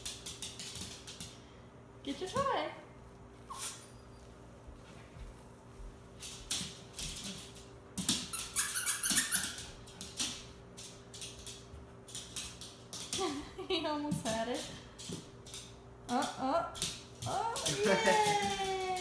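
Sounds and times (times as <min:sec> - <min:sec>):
dog claws clicking on hardwood floor: 0:00.0 - 0:01.4, 0:06.2 - 0:13.4, 0:14.1 - 0:19.0.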